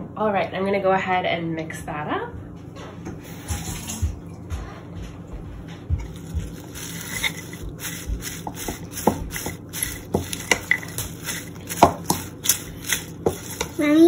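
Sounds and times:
salad leaves rustling in dressing: 0:06.0 - 0:14.0.

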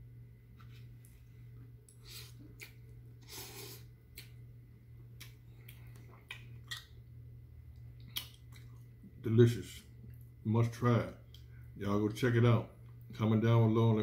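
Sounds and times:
low hum: 0:00.0 - 0:14.0
chewing noodles: 0:05.2 - 0:07.0.

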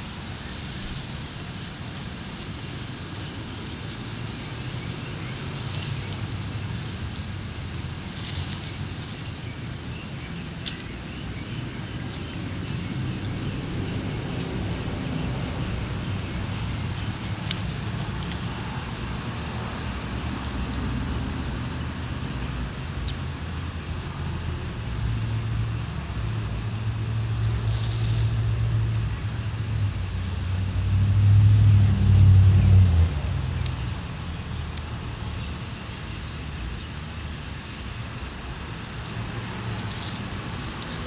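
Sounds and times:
vehicle engine rumble: 0:00.0 - 0:41.0.

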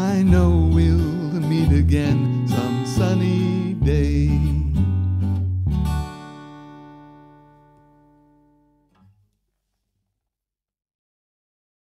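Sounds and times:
guitar chord ringing: 0:00.0 - 0:09.0.

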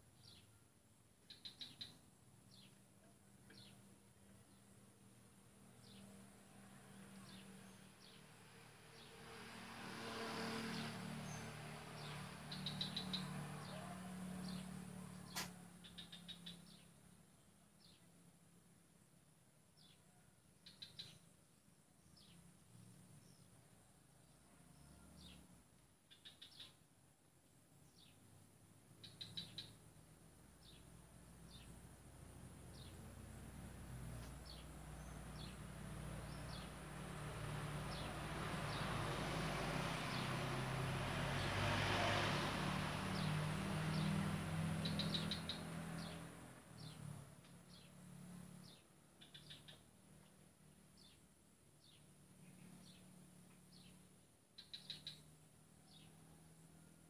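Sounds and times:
small birds chirping: 0:00.0 - 0:00.6, 0:01.2 - 0:04.9, 0:05.7 - 0:09.2, 0:10.5 - 0:18.3, 0:19.8 - 0:26.9, 0:27.7 - 0:40.7, 0:43.0 - 0:56.6
passing motor vehicle: 0:04.6 - 0:17.2, 0:27.9 - 0:57.0.

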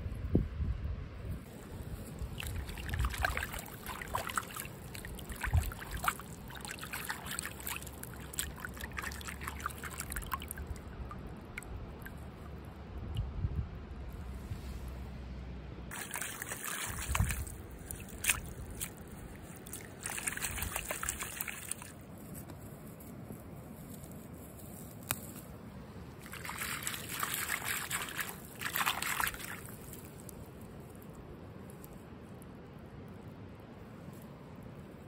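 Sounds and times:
wet squelching mud: 0:01.4 - 0:12.4, 0:15.9 - 0:22.6, 0:26.2 - 0:31.1.

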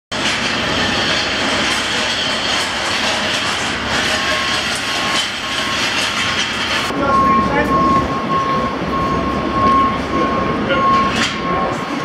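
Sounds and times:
heavy vehicles rumbling: 0:00.1 - 0:12.0.

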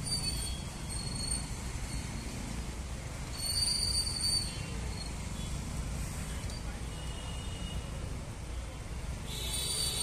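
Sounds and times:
low rumble of street traffic: 0:00.0 - 0:10.0.

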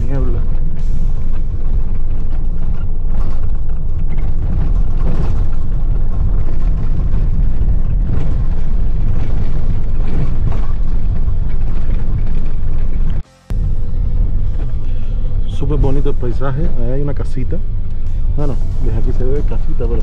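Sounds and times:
knocks and rattles: 0:00.0 - 0:13.2
vehicle road rumble: 0:00.0 - 0:20.0.

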